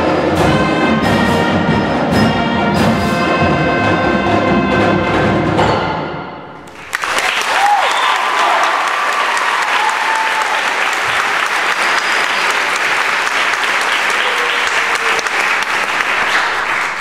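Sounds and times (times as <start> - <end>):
audience applauding: 6.6 - 17.0.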